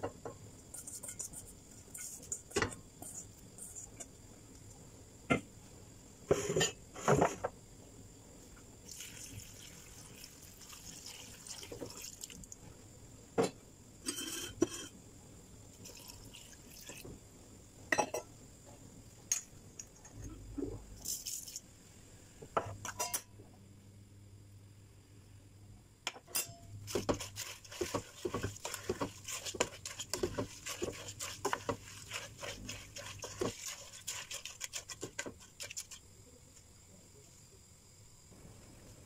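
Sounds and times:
water pouring into a pot: 8.8s - 12.6s, 15.7s - 17.1s, 27.2s - 36.0s
cookware clinking and knocking: 22.6s - 23.3s, 26.1s - 26.7s.

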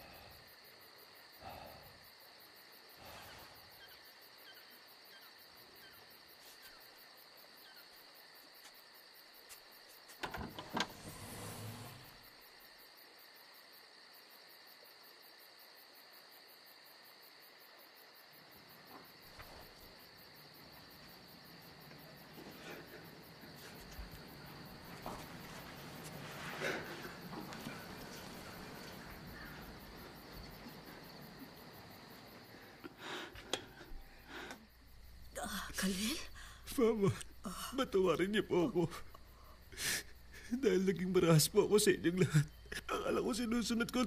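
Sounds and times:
insects chirring: 0.0s - 44.0s
soft rustles of movement: 18.8s - 32.8s.

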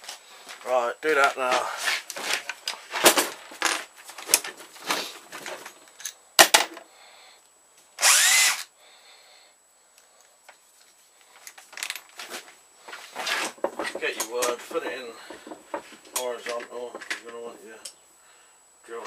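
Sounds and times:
electric drill whine: 8.0s - 8.7s.

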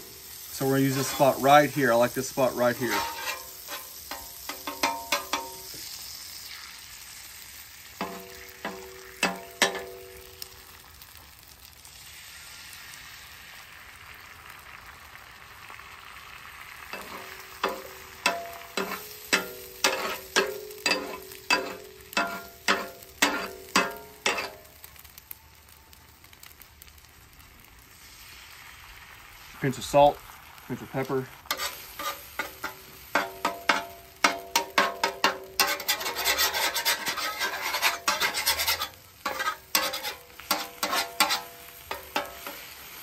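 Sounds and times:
butter and eggs sizzling: 0.0s - 43.0s
metal spatula striking griddle: 2.4s - 5.9s, 8.0s - 10.5s, 16.9s - 24.8s, 31.5s - 43.0s.

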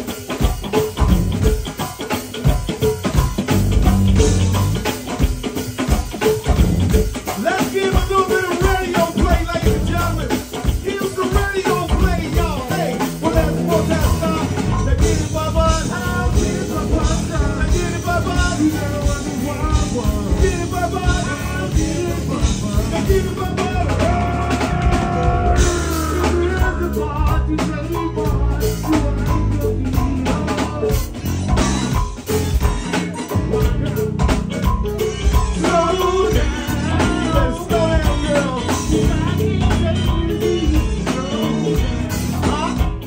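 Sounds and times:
drum kit and percussion beat: 0.0s - 43.0s
person singing: 7.3s - 31.4s, 33.0s - 34.7s, 35.6s - 43.0s.

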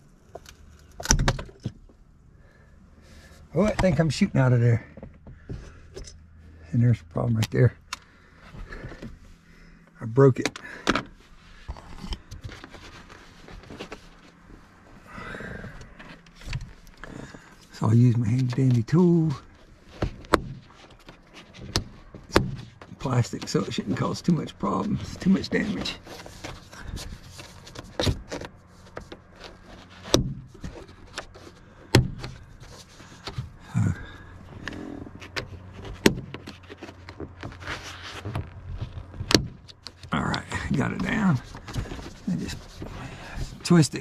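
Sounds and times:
faint handling clicks and knocks: 0.1s - 2.1s, 3.4s - 6.4s, 7.0s - 44.0s
soft rustle: 11.2s - 44.0s.

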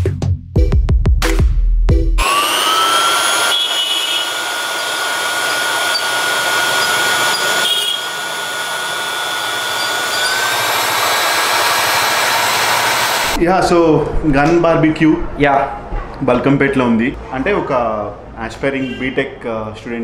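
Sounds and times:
electric blower whining: 2.2s - 13.4s.

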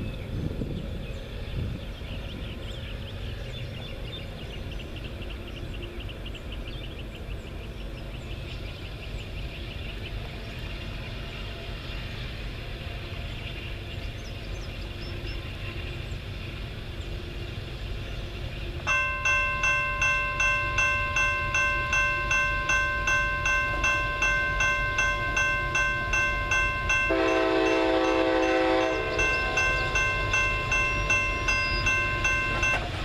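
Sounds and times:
freight train rumbling: 0.0s - 33.0s
locomotive bell ringing: 18.9s - 33.0s.

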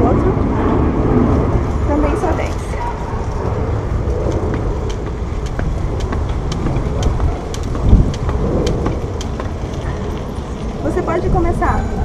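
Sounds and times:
steady low rumble: 0.0s - 12.0s
jump rope slapping ground: 3.9s - 11.0s.

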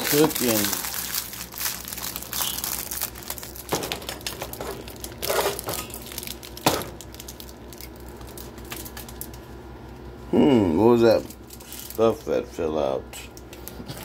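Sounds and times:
plastic film crinkling: 0.0s - 9.5s, 11.0s - 12.4s.

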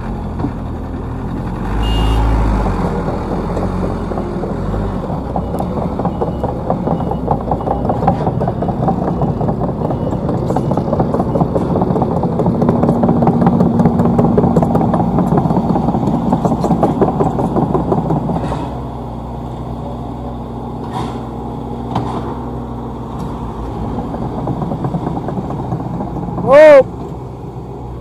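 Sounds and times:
diesel engine under load: 0.0s - 28.0s
sharp knocks: 5.2s - 18.9s.

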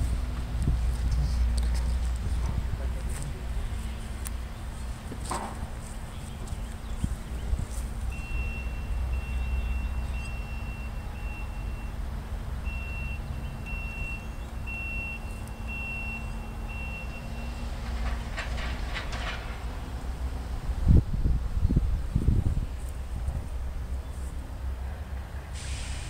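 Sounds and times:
crossing warning bell ringing: 8.1s - 17.8s.

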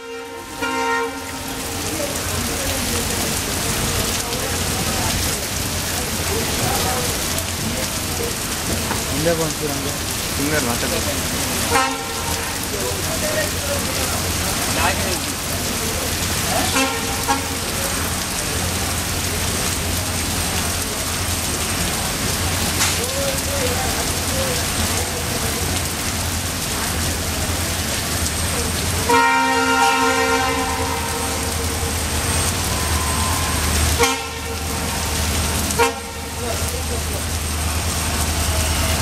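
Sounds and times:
locomotive horn: 0.0s - 2.3s, 11.6s - 12.7s, 16.5s - 18.2s, 29.0s - 36.8s
diesel locomotive engines rumbling: 0.0s - 39.0s
rain and waterfall spray: 0.0s - 39.0s.

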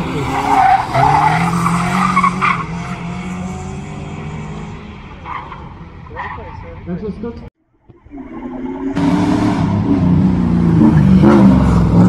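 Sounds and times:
rally car engine at high revs: 0.0s - 5.2s, 9.0s - 12.0s.

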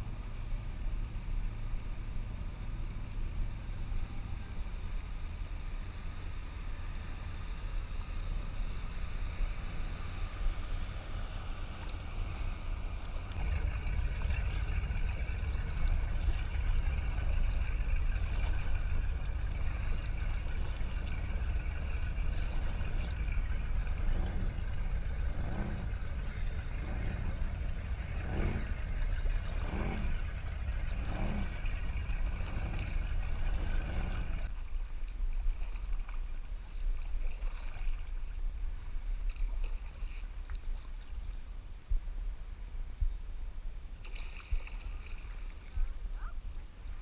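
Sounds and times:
motorboat engine running: 0.0s - 41.4s
wind rumble on microphone: 0.0s - 47.0s
kayak paddle splashes: 7.2s - 41.4s, 44.0s - 47.0s.

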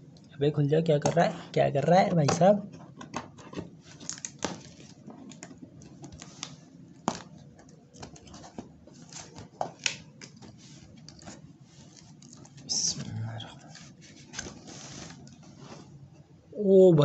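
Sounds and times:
cardboard being handled: 2.3s - 12.8s, 13.6s - 16.1s.

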